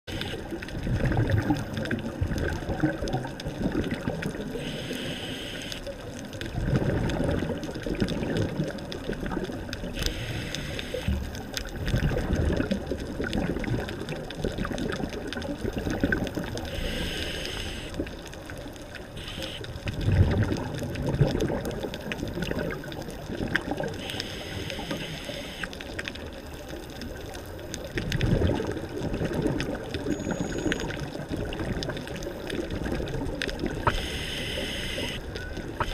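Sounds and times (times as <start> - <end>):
bubbling exhaled air underwater: 0.1 - 35.9
regulator hissing inhalation: 4.6 - 5.8, 10.0 - 11.1, 16.7 - 17.9, 24.0 - 25.7, 33.9 - 35.2.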